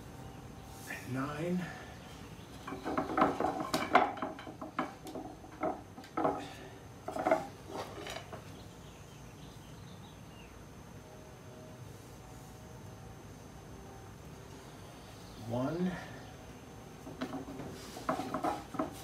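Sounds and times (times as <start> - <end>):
wooden spindles knocking: 2.5 - 8.5, 17.0 - 19.0.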